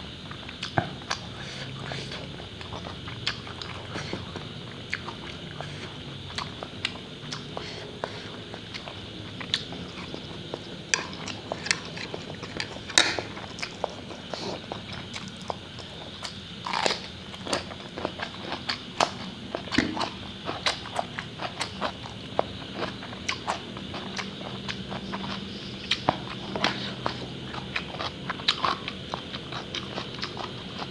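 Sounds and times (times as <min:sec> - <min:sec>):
chewing and slurping noodles: 0:00.3 - 0:30.9
crunchy cucumber bite: 0:10.9 - 0:30.9.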